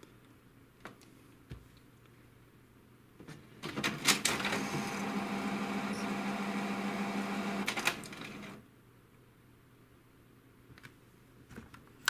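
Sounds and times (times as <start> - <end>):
printer clicks: 3.6 - 8.6
printer motor humming: 4.1 - 8.6.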